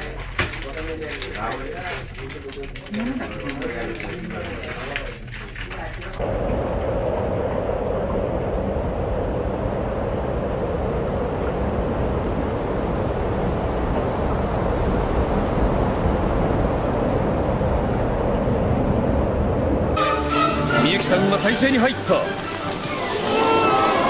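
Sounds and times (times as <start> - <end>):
low rumble: 6.1 - 20.0
outdoor rushing noise: 6.1 - 20.0.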